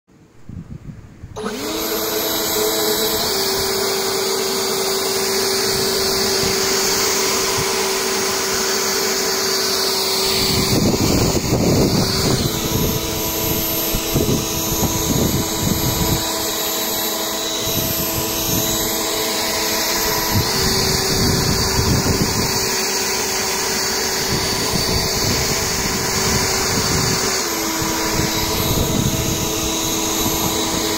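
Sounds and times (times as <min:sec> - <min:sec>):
leaf blower running: 0:01.4 - 0:30.9
rushing air hitting leaves: 0:05.2 - 0:16.2, 0:20.0 - 0:30.8.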